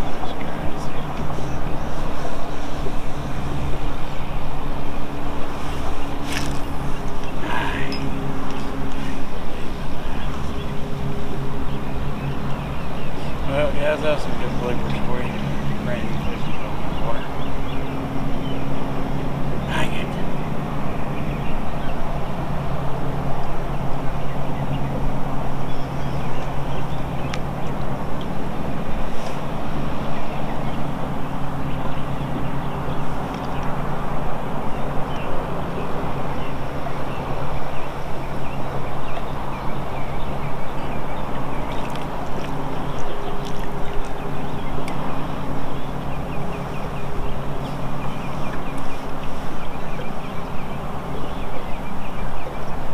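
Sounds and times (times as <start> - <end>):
boat motor humming: 0.0 - 52.9
wind noise on microphone: 0.0 - 52.9.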